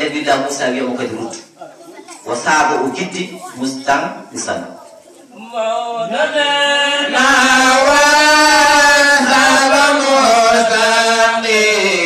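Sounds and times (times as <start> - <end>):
men chanting: 5.3 - 12.0.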